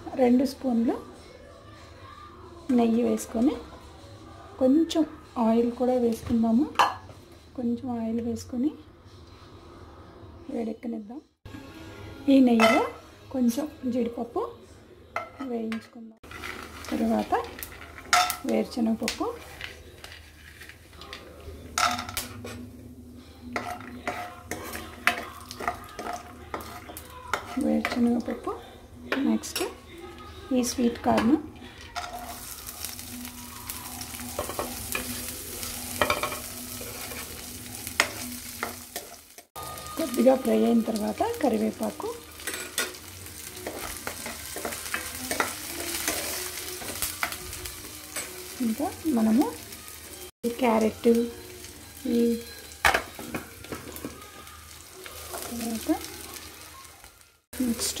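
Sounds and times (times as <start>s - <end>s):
steel spoon scraping pan: 16.2s - 18.5s, 23.4s - 28.2s, 31.9s - 32.8s, 34.2s - 40.4s
food sizzling in oil: 16.2s - 20.9s, 21.7s - 58.0s
ladle stirring frying nuts: 16.2s - 21.2s, 31.9s - 50.7s.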